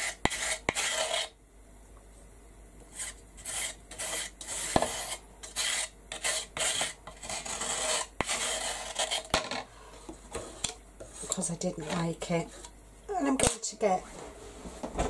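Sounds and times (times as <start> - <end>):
metal blade scraping wood: 0.0 - 1.3, 3.0 - 9.4.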